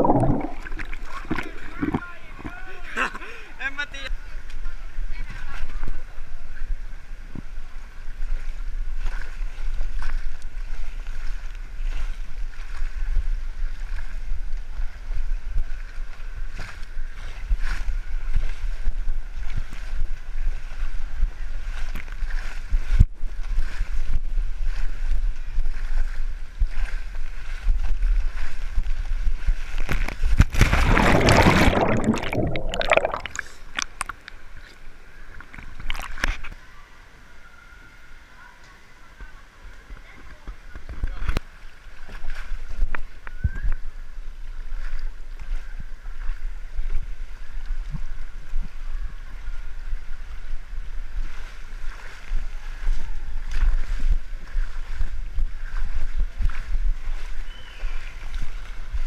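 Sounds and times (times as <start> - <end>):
low rumble: 0.0 - 2.5
water sloshing: 0.0 - 3.2, 29.5 - 36.6
running water on waterslide: 0.0 - 59.0
loud splash into pool: 30.4 - 33.6.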